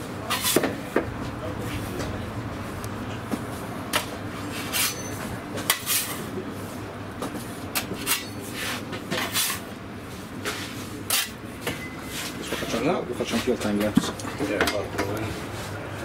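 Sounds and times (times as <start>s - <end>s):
steady low hum: 0.0s - 11.6s.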